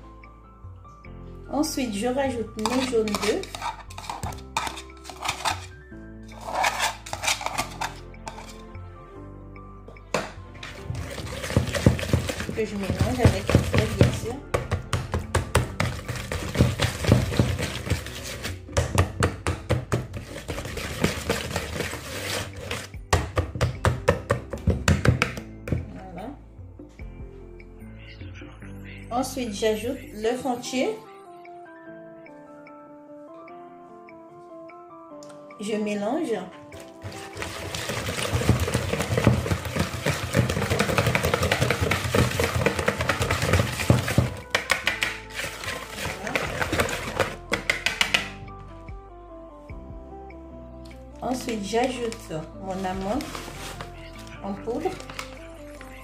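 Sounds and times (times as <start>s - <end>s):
whisk tapping and scraping bowl: 2.6s - 5.7s, 6.3s - 8.6s, 10.2s - 25.4s, 36.8s - 48.3s, 51.4s - 54.0s, 54.8s - 55.9s.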